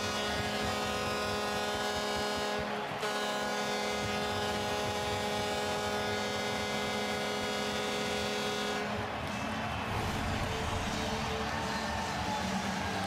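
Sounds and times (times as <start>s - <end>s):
goal horn blaring: 0.0s - 9.8s.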